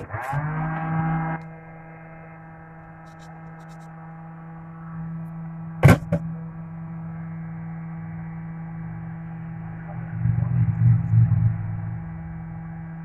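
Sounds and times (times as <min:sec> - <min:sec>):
low steady hum: 0:00.0 - 0:13.0
sharp knocks: 0:05.8 - 0:06.3.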